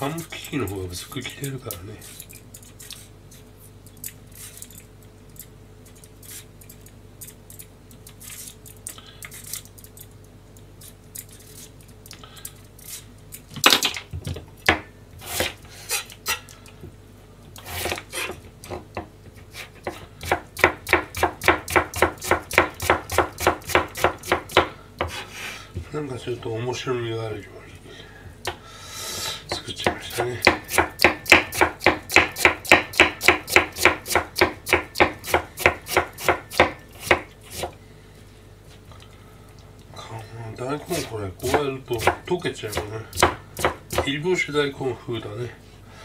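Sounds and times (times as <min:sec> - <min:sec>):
knife chopping on plastic board: 0:19.8 - 0:25.2, 0:29.5 - 0:37.7, 0:41.4 - 0:44.2.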